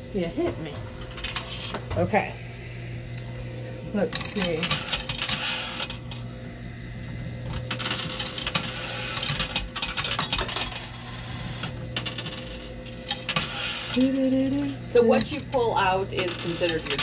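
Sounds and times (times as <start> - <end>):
machine low hum: 0.0 - 17.0
coins clinking and clattering: 7.6 - 11.2, 12.0 - 15.4, 16.2 - 17.0.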